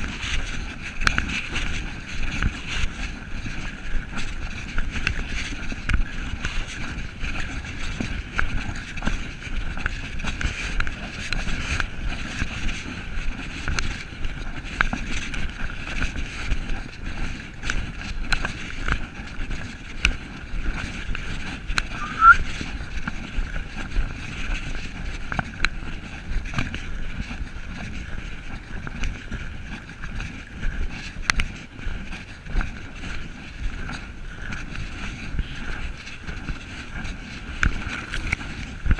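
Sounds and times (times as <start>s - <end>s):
wind rumble on microphone: 0.0s - 38.9s
short rising chirp: 21.9s - 22.4s.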